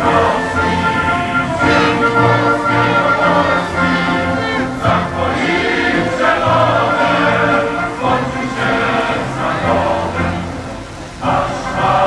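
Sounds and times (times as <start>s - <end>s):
choir singing slowly: 0.0s - 12.0s.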